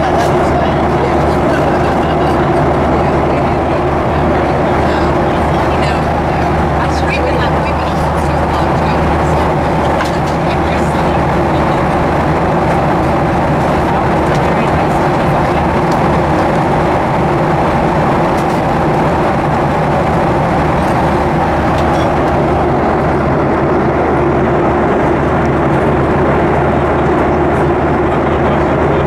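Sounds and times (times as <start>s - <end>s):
air rushing along airplane fuselage: 0.0s - 29.0s
low hum of jet engines: 0.0s - 29.0s.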